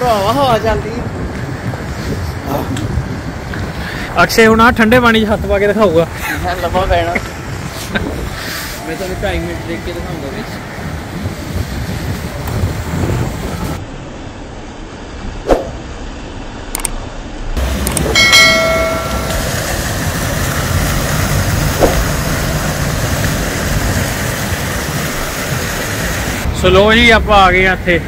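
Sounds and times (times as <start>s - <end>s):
wind rumble on microphone: 0.0s - 13.8s, 17.6s - 28.0s
sharp click: 16.7s - 17.0s.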